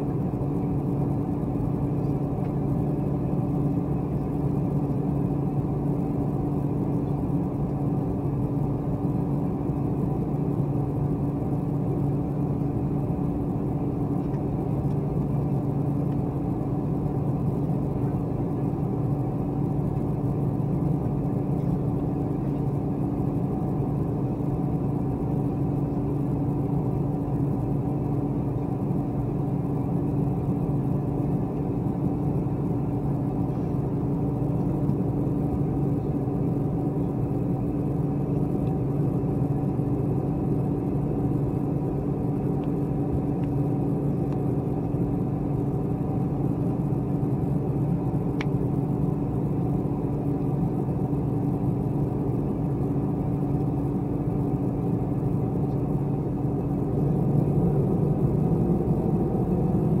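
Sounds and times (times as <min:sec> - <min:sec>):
jet engines idling: 0:00.0 - 1:00.0.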